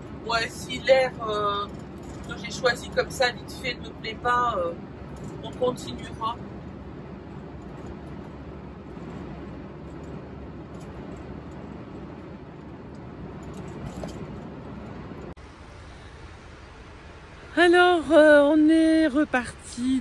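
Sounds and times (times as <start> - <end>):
road and engine noise in cab: 0.0 - 20.0.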